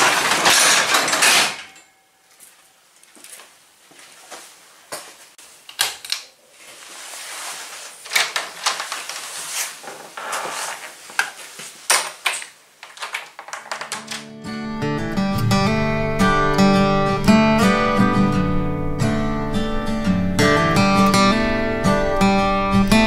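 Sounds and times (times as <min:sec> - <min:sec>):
knocks and clatter of handling: 0:00.0 - 0:02.6, 0:08.0 - 0:14.3.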